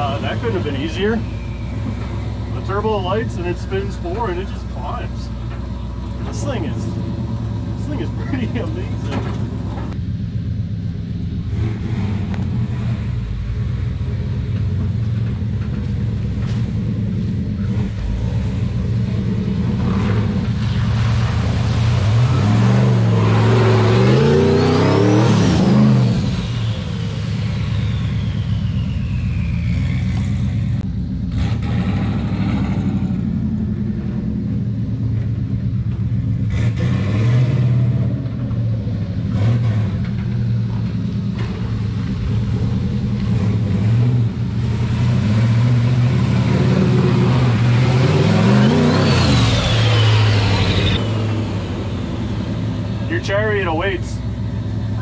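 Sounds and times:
truck engine revving: 0:00.0 - 0:55.0
turbo whistle: 0:26.6 - 0:30.1.

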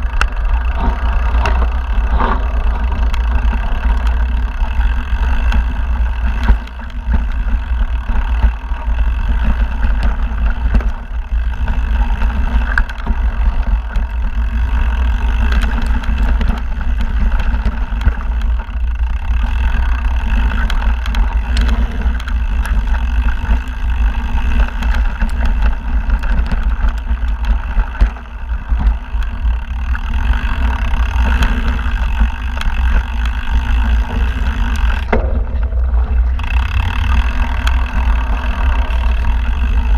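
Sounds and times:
bike clicking and rattling: 0:00.0 - 0:39.9
tyres rumbling on a dirt trail: 0:00.0 - 0:39.9
wind on microphone: 0:19.8 - 0:39.9.

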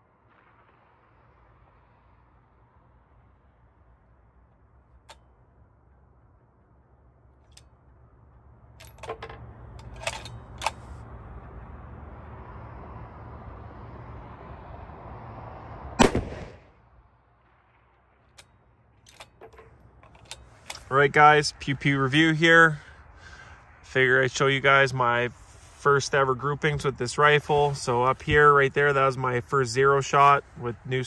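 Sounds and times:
rifle handling clicks: 0:08.8 - 0:11.0, 0:19.1 - 0:20.9
rifle shot: 0:16.0 - 0:16.8.

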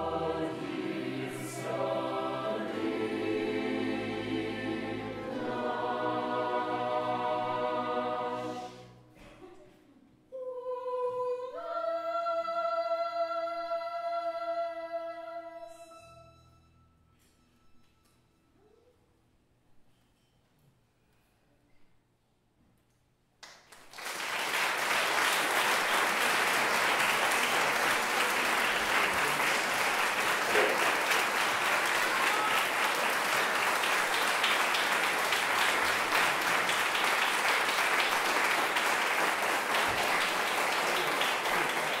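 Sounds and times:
audience applause: 0:23.8 - 0:42.0.

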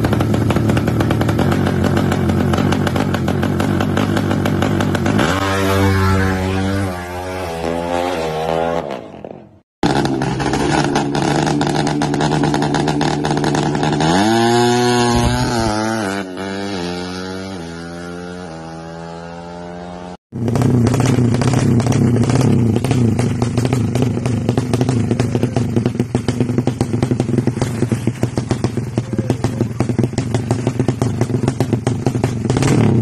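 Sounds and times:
crackling exhaust: 0:00.0 - 0:06.6, 0:20.3 - 0:33.0
motorcycle throttle blips: 0:00.0 - 0:16.4, 0:20.3 - 0:33.0
motorcycle accelerating through gears: 0:00.0 - 0:33.0.

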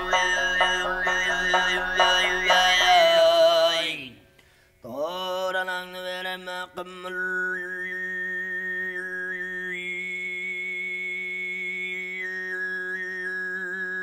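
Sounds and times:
overtone singing: 0:00.0 - 0:04.2.

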